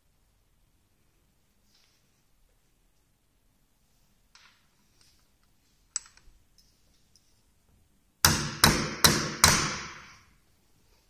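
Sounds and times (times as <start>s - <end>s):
sharp metallic knocks: 8.2s - 10.2s.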